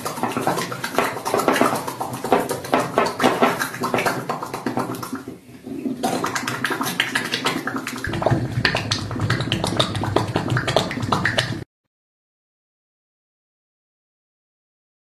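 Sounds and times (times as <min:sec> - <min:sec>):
low rumble: 0:08.1 - 0:11.6.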